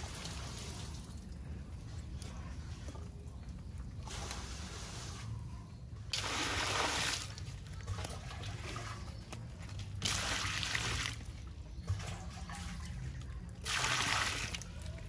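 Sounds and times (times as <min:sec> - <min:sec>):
water pouring into metal basin: 0:06.1 - 0:15.0.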